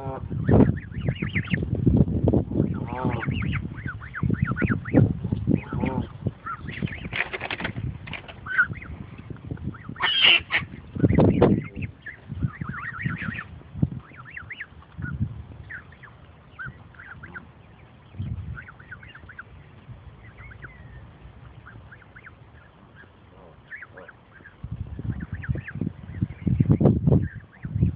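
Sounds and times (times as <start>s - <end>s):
goslings peeping: 0.0s - 27.9s
low rumble: 7.7s - 27.9s
goose call: 9.8s - 13.5s, 15.7s - 17.6s, 21.6s - 24.6s.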